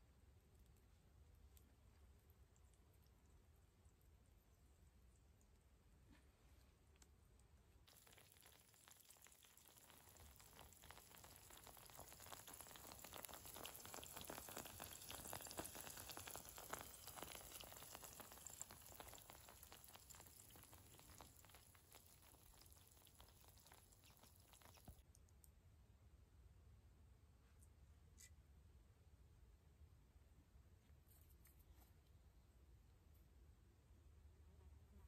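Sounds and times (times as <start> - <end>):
eggs sizzling in a pan: 7.8 - 25.1.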